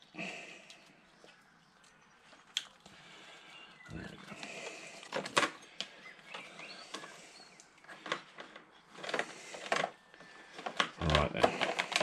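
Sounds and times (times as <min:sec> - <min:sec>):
wiring rustling: 0:03.9 - 0:12.0.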